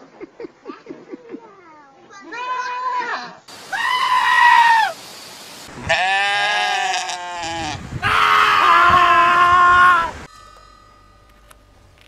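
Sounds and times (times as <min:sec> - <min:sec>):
sheep bleating: 0:05.8 - 0:07.8.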